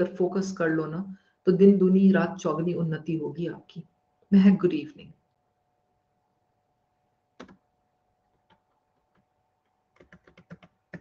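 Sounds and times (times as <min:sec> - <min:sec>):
faint steady hum: 0:00.0 - 0:11.0
typing on a keyboard: 0:07.4 - 0:07.6, 0:09.9 - 0:11.0.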